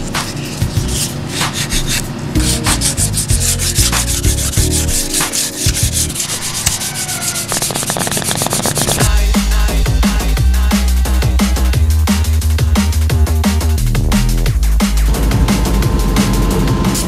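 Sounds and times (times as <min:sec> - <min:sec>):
sandpaper rubbing on plastic: 0:00.0 - 0:09.1, 0:14.6 - 0:15.1.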